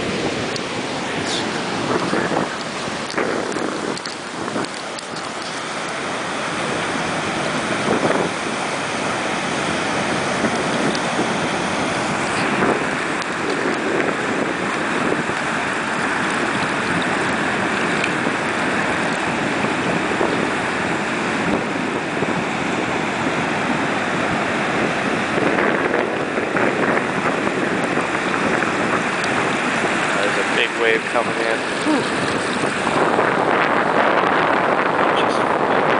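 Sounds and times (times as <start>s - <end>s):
surf washing over rocks: 0.0s - 35.9s.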